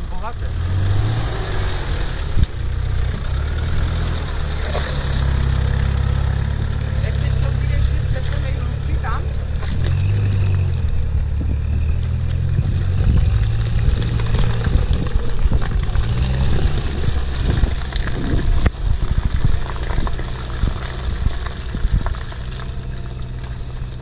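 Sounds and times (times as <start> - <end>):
pickup engine revving: 0.0 - 24.0.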